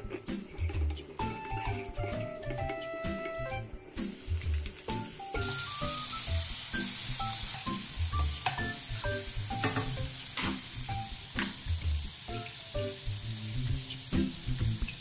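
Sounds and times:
bacon sizzling in hot oil: 3.9s - 15.0s.

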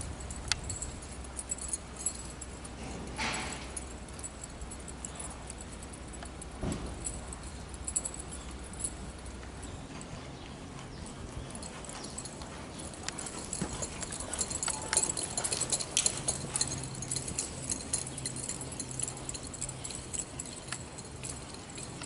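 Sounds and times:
hoofbeats in soft dirt: 0.2s - 22.0s
tack jingling and rattling: 10.8s - 22.0s.

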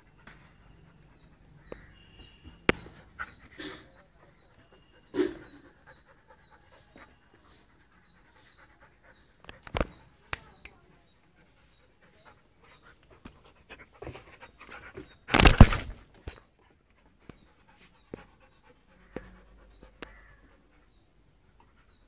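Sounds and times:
dog panting and sniffing: 0.0s - 15.6s, 16.2s - 22.0s.

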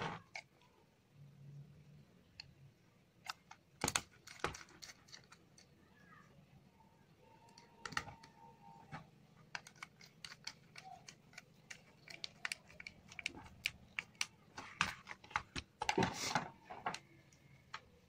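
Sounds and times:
screwdriver clicking on screws: 9.5s - 14.4s.

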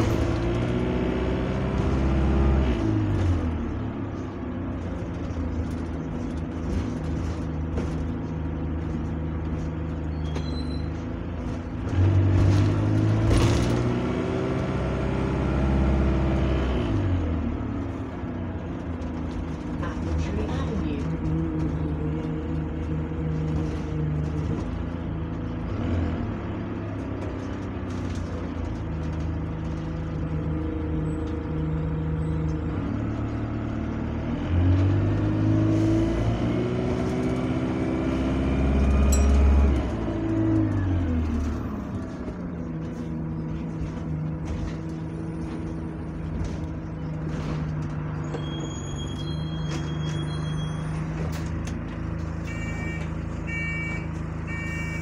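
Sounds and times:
bus diesel engine: 0.0s - 55.0s
door opening alert beeps: 52.5s - 55.0s.

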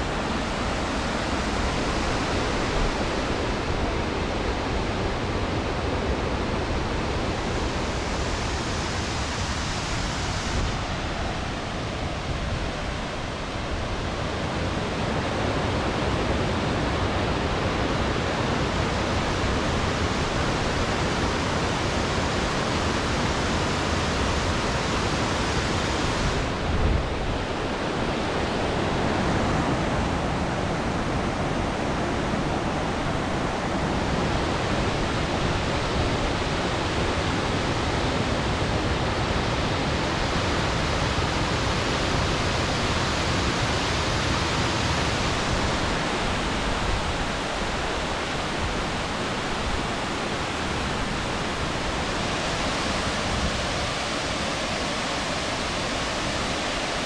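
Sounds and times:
waterfall rushing: 15.7s - 57.0s.

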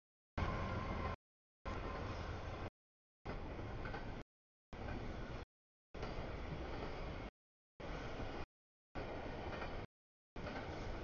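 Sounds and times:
freight train rumbling: 0.4s - 2.7s, 4.8s - 11.0s.

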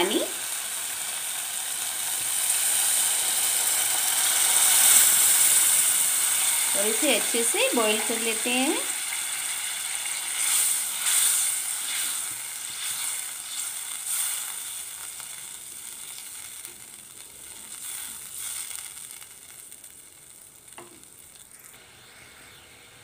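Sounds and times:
gravy sizzling and bubbling in a pan: 0.0s - 23.0s
spatula stirring in a pan: 9.1s - 21.6s.

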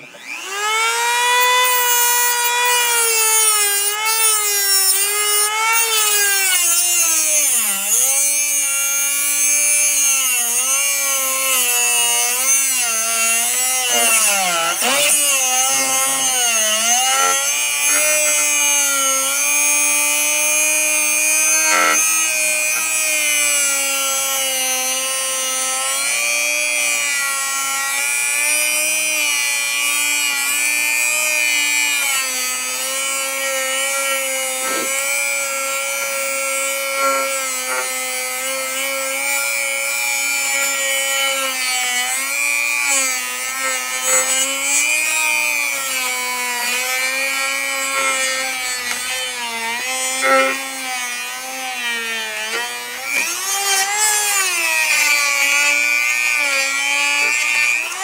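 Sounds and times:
rotary tool grinding metal: 0.0s - 58.0s.

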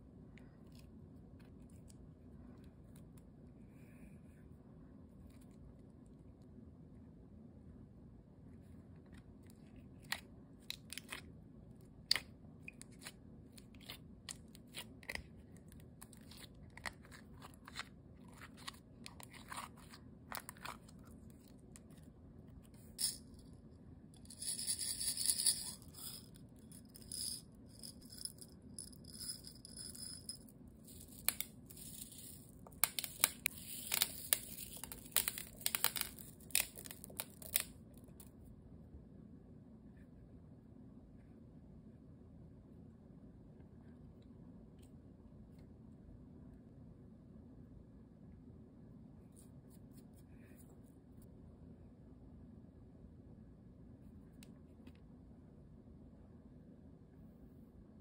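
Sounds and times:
beads rattling from plastic container: 23.0s - 23.3s, 24.2s - 37.7s.

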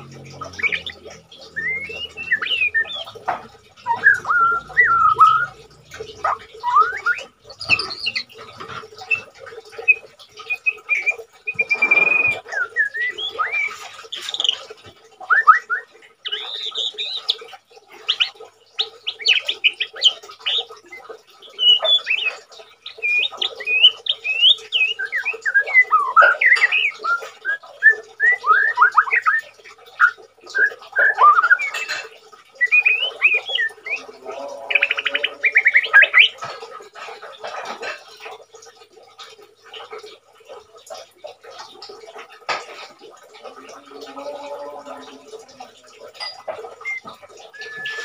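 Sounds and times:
bird singing whistles and trills: 0.1s - 8.4s, 9.0s - 14.6s, 15.2s - 17.4s, 18.1s - 31.9s, 32.5s - 34.1s, 34.7s - 36.4s, 46.2s - 48.0s.

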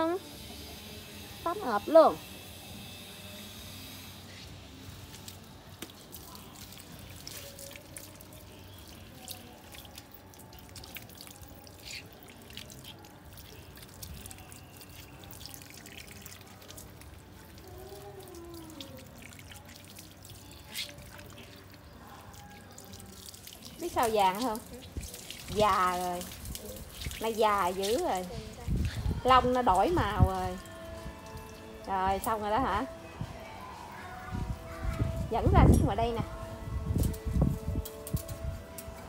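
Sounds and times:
water dripping: 5.0s - 32.9s
water running from a tap: 5.0s - 32.9s
water splashing on concrete: 5.0s - 32.9s.

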